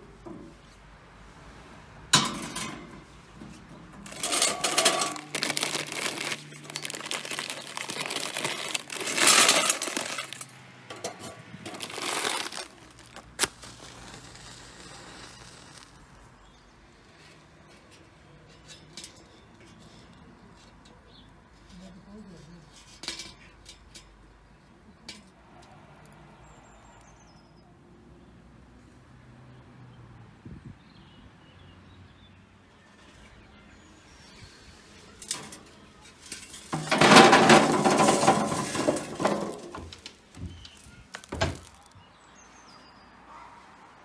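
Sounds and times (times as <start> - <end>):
charcoal clattering into metal chimney: 2.1 - 14.2, 35.2 - 41.9.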